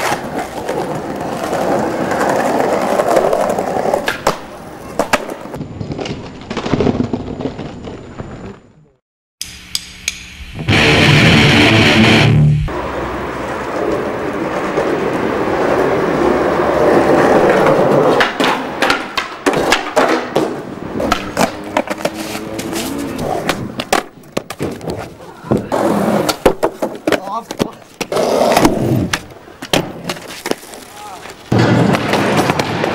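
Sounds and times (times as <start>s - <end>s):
skateboard clacks and slaps: 0.0s - 6.6s, 13.7s - 32.9s
skateboard wheels rolling on concrete: 0.0s - 9.0s, 10.6s - 32.9s
music: 10.6s - 12.5s.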